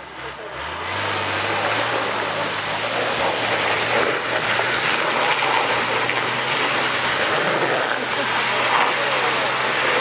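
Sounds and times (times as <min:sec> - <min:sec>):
engine running under load: 0:00.0 - 0:10.0
tyres churning through mud: 0:00.0 - 0:10.0.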